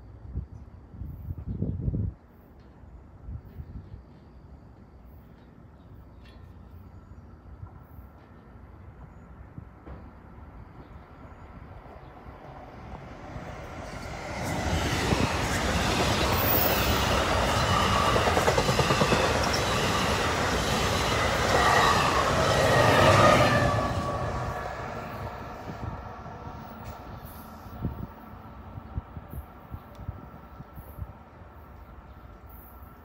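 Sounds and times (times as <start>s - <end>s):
train passing rumble: 2.3s - 33.0s.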